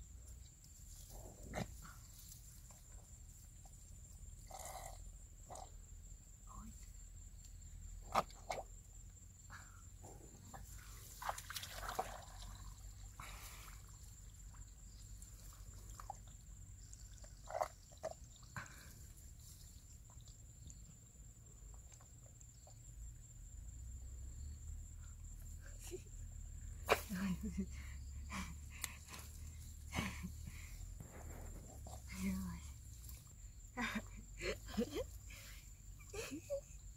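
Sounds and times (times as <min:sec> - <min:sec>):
hands splashing in muddy water: 0:11.1 - 0:12.8.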